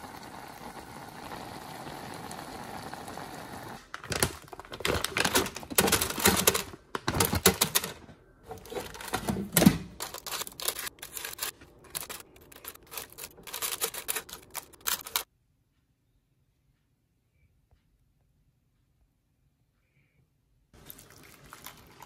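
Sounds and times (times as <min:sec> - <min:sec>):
parchment paper rustling: 0:03.8 - 0:15.3
chopsticks clicking and tapping: 0:10.0 - 0:15.2.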